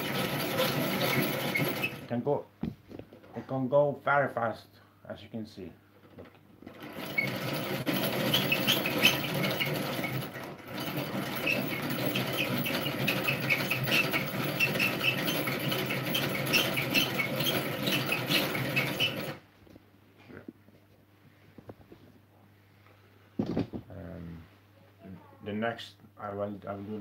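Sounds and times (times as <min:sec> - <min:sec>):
rotary egg beater whirring: 0:00.0 - 0:02.1, 0:06.7 - 0:19.4.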